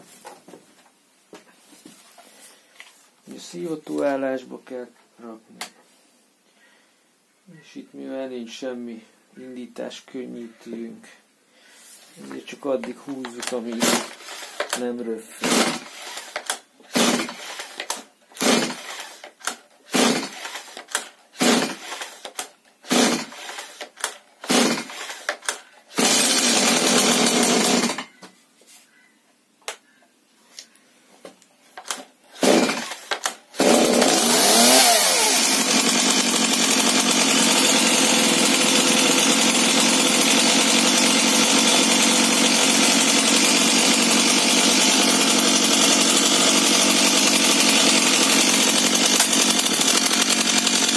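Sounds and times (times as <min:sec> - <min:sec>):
starter rope pulls: 0:12.2 - 0:28.0, 0:31.8 - 0:50.9
chainsaw engine running: 0:12.9 - 0:28.0, 0:31.8 - 0:50.9.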